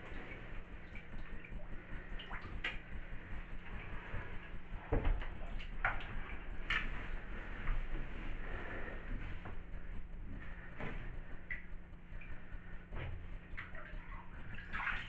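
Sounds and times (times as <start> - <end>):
bathwater sloshing: 0.0 - 15.0
water splashes and knocks: 4.8 - 7.1, 12.9 - 15.0.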